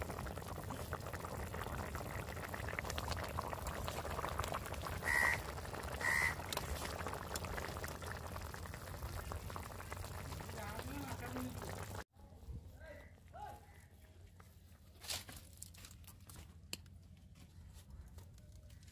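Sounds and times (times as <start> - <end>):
curry bubbling and sizzling: 0.0 - 12.1.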